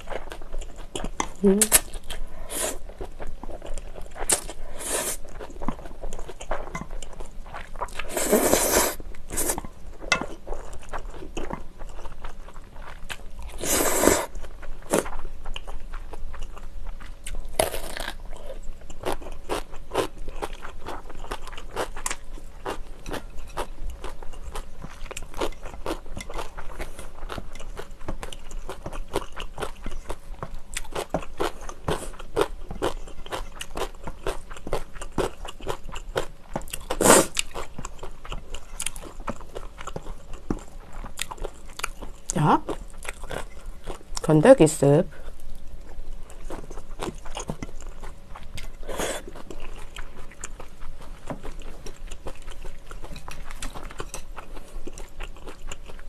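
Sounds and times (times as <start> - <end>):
crunching and chewing radish: 0.0 - 44.4, 45.1 - 56.0
slurping noodles: 8.0 - 9.6, 13.6 - 14.3.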